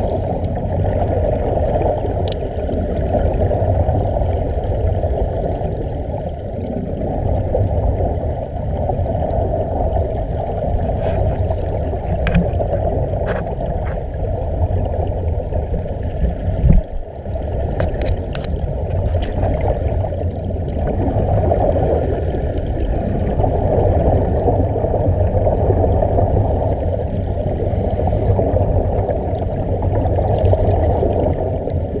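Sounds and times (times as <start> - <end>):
underwater air bubbling: 0.0 - 32.0
faint clicks: 2.2 - 2.4.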